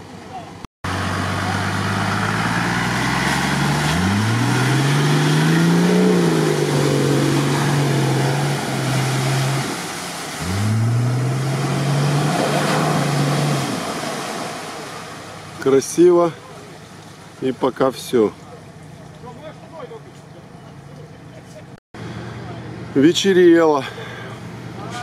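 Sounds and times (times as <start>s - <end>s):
car engine revving: 0.9s - 14.6s
mud and water splashing: 0.9s - 21.3s.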